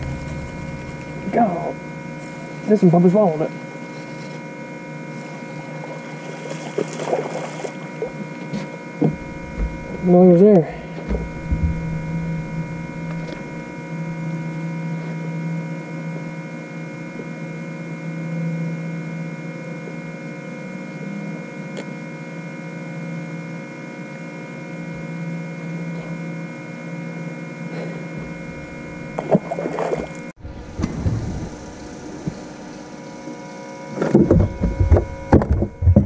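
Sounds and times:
steady tones: 0.0 - 3.9, 8.8 - 15.7, 28.1 - 30.6
electric motor humming: 0.0 - 36.0.

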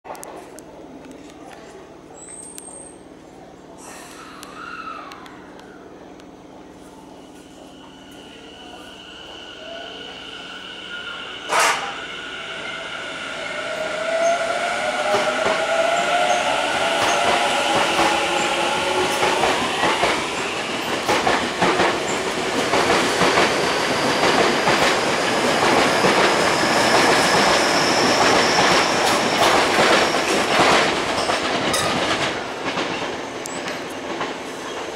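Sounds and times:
train traction motors whining: 4.3 - 34.0
train wheels clattering over rail joints: 17.0 - 34.9.

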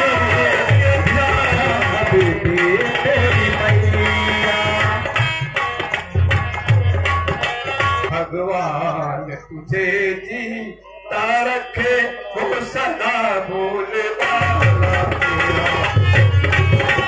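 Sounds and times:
tabla drumming: 0.0 - 10.2, 11.2 - 17.0
person singing: 8.1 - 16.4.

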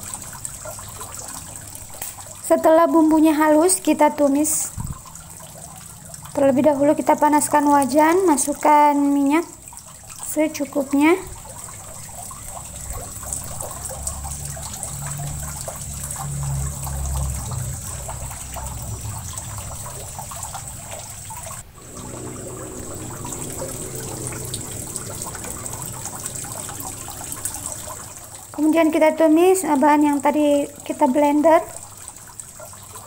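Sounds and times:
oil trickling into a wok: 4.4 - 28.7.

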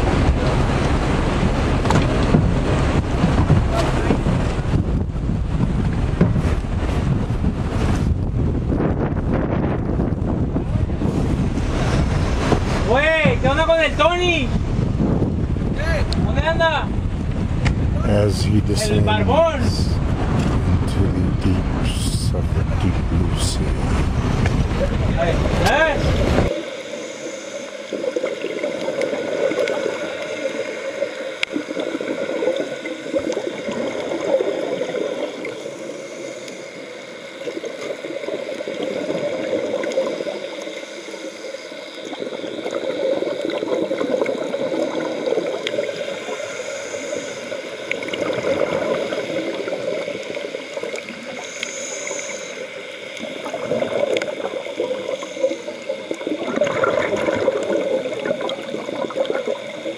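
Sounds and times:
underwater bubbling and gurgling: 0.0 - 59.9.

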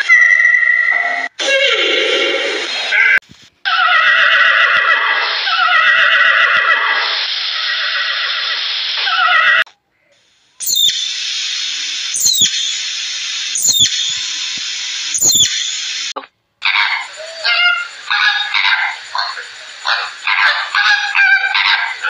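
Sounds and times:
horses whinnying: 3.7 - 7.0
steady hiss: 6.8 - 16.2, 16.9 - 22.0
short sharp chirp: 12.2 - 12.7.

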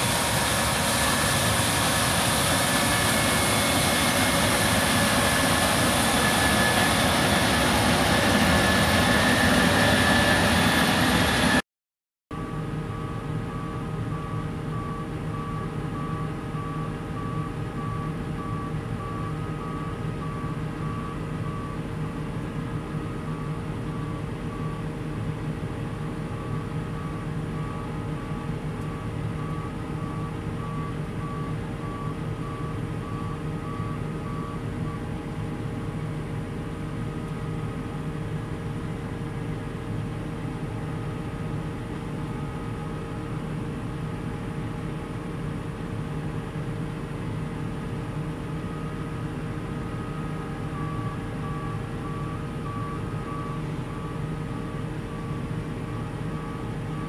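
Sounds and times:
combine harvester running: 0.0 - 11.6, 12.4 - 57.0
electronic warning beeps: 12.4 - 21.9, 26.4 - 35.1, 49.8 - 57.0.

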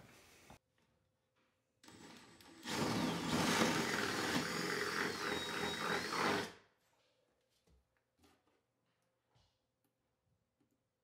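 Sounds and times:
power drill boring into wood: 1.8 - 6.6.

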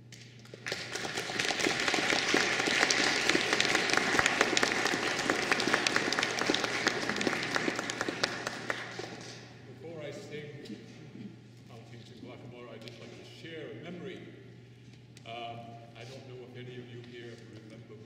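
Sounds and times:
audience applauding: 0.5 - 9.5.

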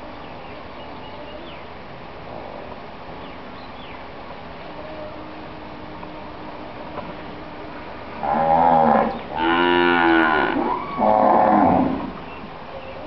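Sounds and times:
cattle mooing: 7.5 - 12.2.

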